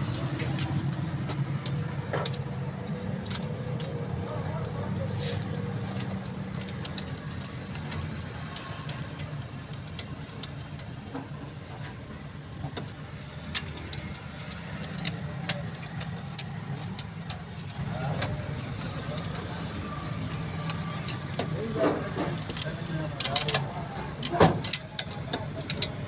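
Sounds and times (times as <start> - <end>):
metallic tool clicks and taps: 0.0 - 11.2, 12.6 - 26.0.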